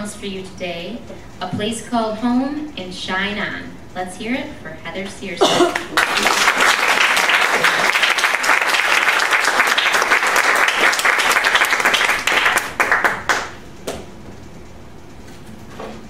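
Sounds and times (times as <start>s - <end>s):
audience applauding: 5.7s - 13.6s.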